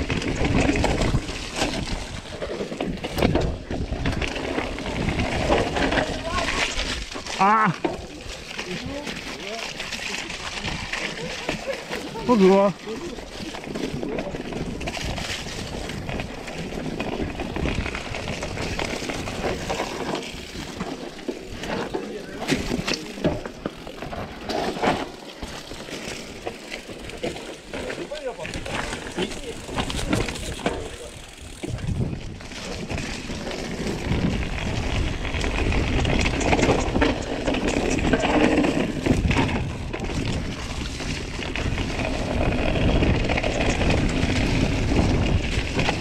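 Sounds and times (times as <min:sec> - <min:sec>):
bike rattling: 0:00.0 - 0:46.0
bike tyres crunching over dirt: 0:00.0 - 0:46.0.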